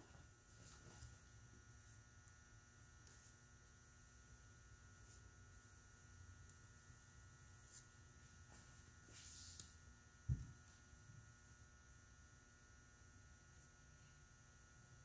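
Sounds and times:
faint steady hum: 0.0 - 15.0
soft brushing strokes: 7.5 - 9.8.

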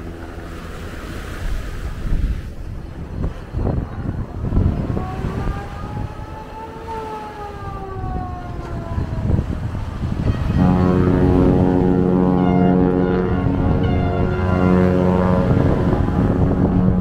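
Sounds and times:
small waves washing on beach: 0.0 - 7.7
wind buffeting microphone: 0.0 - 17.0
faint siren-like tone: 3.1 - 17.0.

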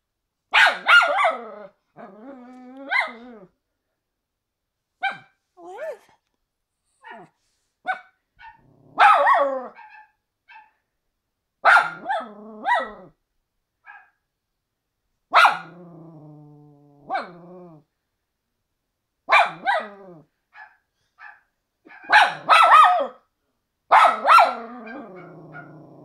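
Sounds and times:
dog barking: 0.5 - 1.4, 2.9 - 3.2, 5.0 - 5.4, 7.0 - 10.8, 11.6 - 13.0, 13.8 - 14.2, 15.3 - 15.8, 19.3 - 23.2, 23.9 - 25.8.

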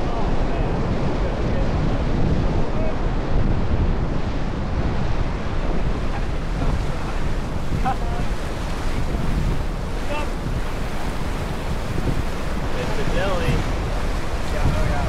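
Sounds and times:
wind buffeting the microphone: 0.0 - 15.0
river rapids rushing: 4.6 - 15.0.

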